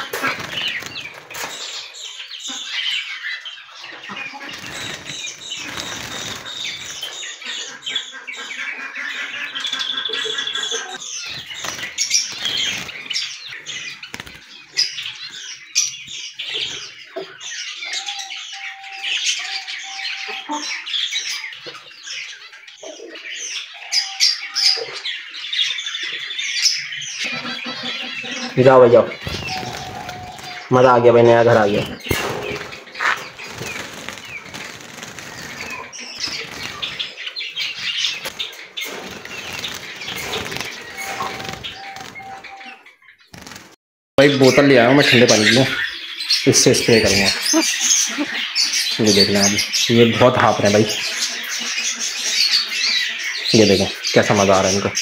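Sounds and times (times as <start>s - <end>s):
birds fluttering wings in cage: 0.0s - 2.3s, 4.0s - 7.6s, 11.0s - 15.5s, 29.1s - 30.7s, 31.7s - 42.5s, 43.3s - 43.8s
small birds chirping: 0.0s - 55.0s.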